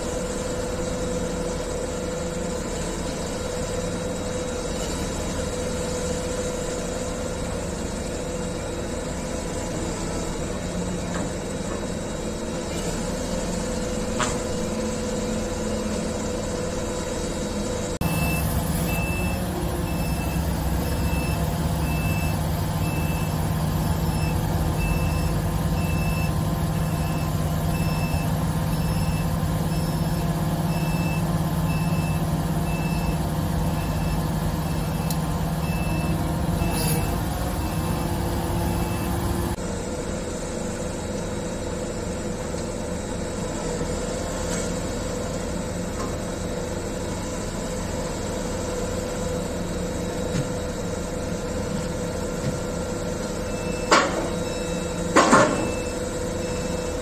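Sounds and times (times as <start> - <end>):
crane diesel engine running: 0.0 - 57.0
high warning beeper: 18.0 - 39.6.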